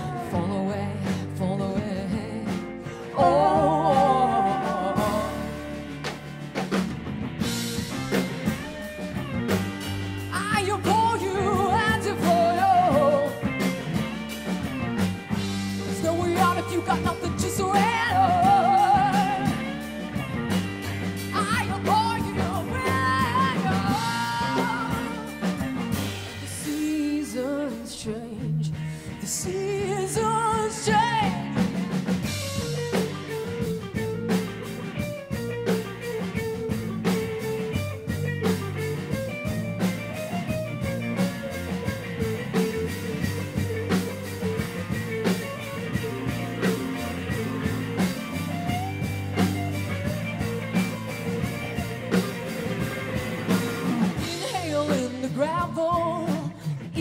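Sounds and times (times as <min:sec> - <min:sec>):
wavering guitar lead melody: 0:00.0 - 0:26.8, 0:28.8 - 0:56.4
live rock band playing: 0:00.0 - 0:57.0.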